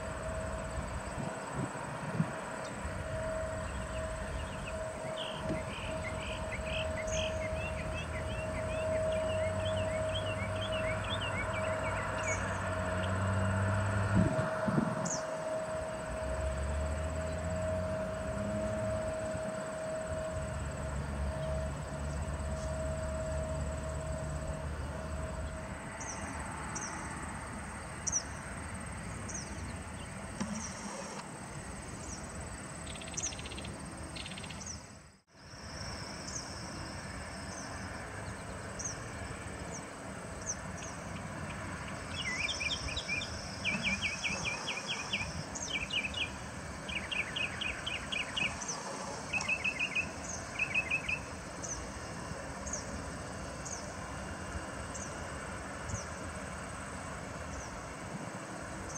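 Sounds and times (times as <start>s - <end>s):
distant jet engines rumbling: 0.0s - 34.9s.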